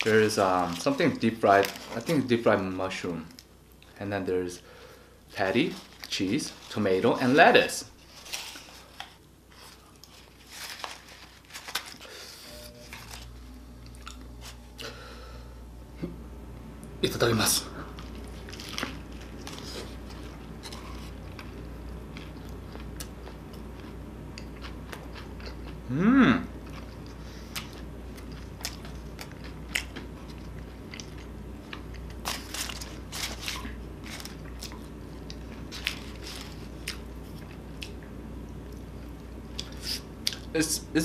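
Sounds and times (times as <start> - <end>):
biting and chewing burger: 17.9 - 40.5
person humming: 25.9 - 26.5.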